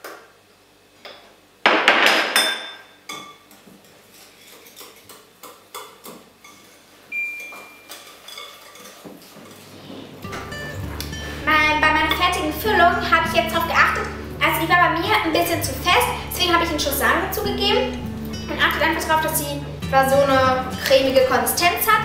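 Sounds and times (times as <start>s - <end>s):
spoon scraping mixing bowl: 3.8s - 5.3s.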